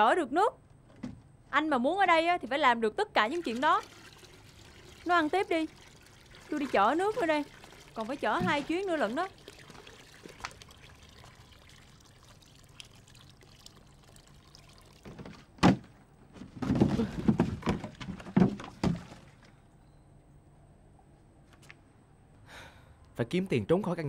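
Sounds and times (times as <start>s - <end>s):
water pouring into a jar: 3.2s - 15.3s
bumps and knocks: 8.3s - 8.8s, 15.0s - 19.3s.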